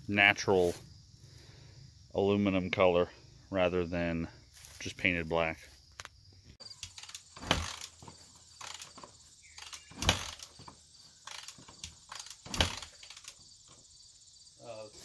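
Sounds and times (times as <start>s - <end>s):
motorcycle engine turning over: 6.7s - 13.4s.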